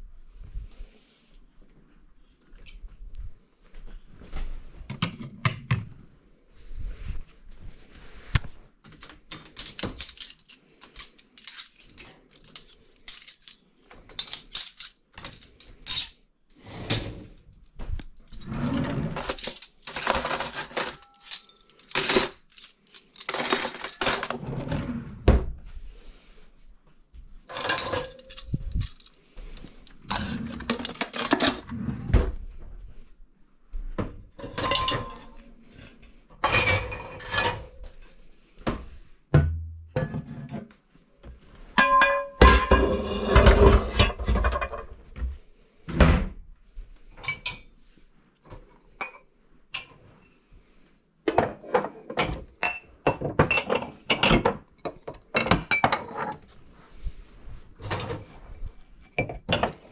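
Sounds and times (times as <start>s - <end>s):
cutlery and dishes clattering: 8.9s - 16.2s, 18.3s - 24.7s, 27.5s - 31.7s, 34.4s - 35.4s, 36.4s - 37.8s, 41.8s - 44.9s, 47.2s - 47.7s, 51.3s - 56.5s, 57.8s - 59.9s.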